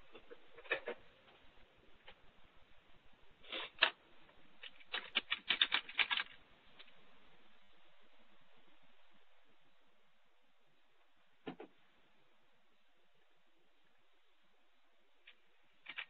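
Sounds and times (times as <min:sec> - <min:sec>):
faint hiss: 0:01.1 - 0:04.9, 0:06.3 - 0:16.0
muffled keyboard typing clicks: 0:04.6 - 0:06.4.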